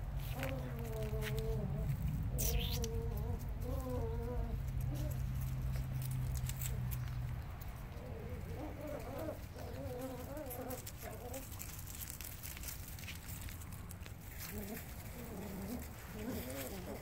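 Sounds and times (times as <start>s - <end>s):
leaves rustling: 0.0s - 17.0s
paws pattering: 0.2s - 17.0s
dog voice-like sounds: 0.3s - 5.2s.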